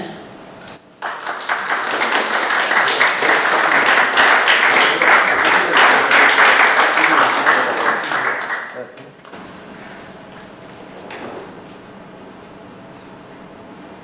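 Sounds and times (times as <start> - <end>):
audience applauding: 1.0 - 8.9.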